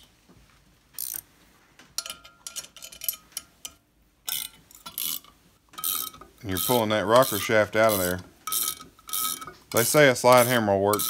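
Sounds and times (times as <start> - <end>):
ratcheting wrench clicking: 1.0 - 1.2, 4.3 - 11.0.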